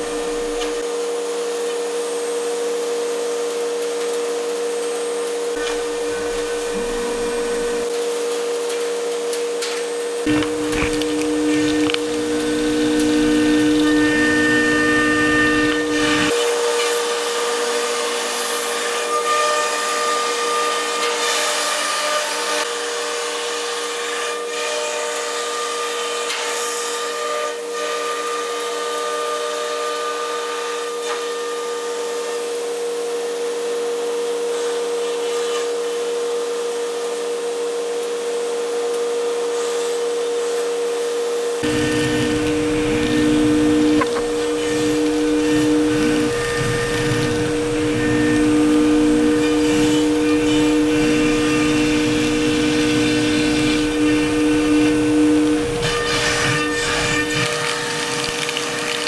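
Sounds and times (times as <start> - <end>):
router spindle cutting: 0.0 - 0.8, 5.5 - 8.0, 10.2 - 22.6, 41.6 - 59.0
dust extraction rushing: 10.3 - 16.4, 41.6 - 59.0.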